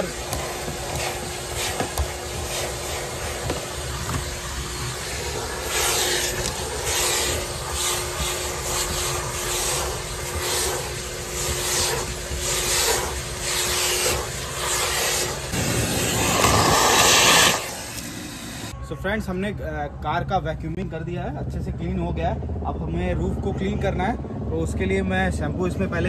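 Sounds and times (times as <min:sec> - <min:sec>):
nozzle brushing carpeted mat: 0:00.0 - 0:18.0
vacuum cleaner whining: 0:00.0 - 0:18.8.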